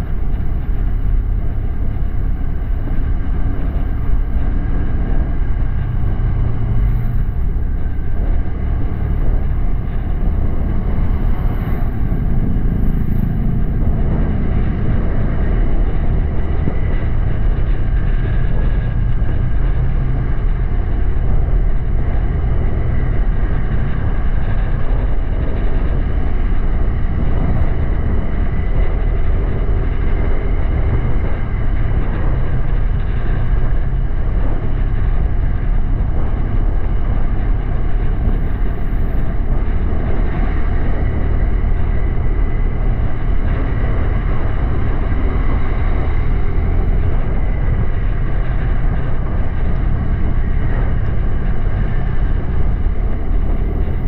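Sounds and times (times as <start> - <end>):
wind on microphone: 0.0 - 54.0.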